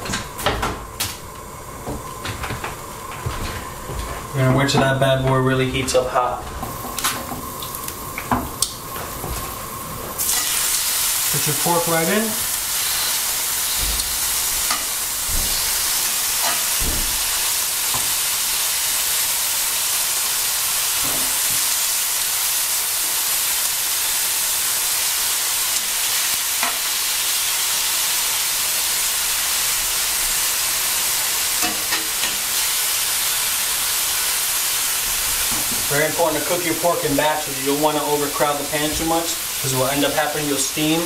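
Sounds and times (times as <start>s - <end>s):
pork sizzling in a skillet: 5.8s - 41.0s
metal tongs clinking on pan: 10.2s - 10.6s, 16.4s - 16.8s, 31.6s - 32.4s.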